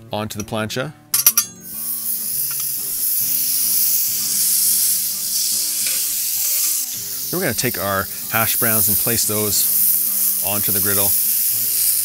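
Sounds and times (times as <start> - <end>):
butter sizzling on griddle: 1.6 - 12.0.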